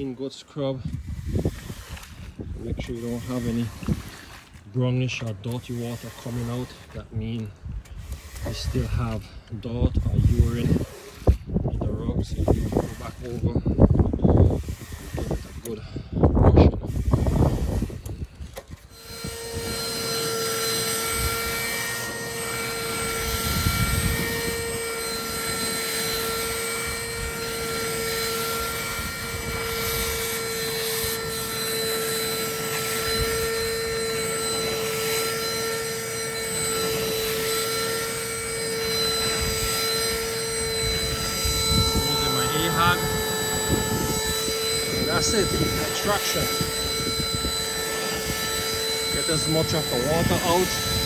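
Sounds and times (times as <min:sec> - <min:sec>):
carpet extractor vacuum motor: 0:17.0 - 0:51.0.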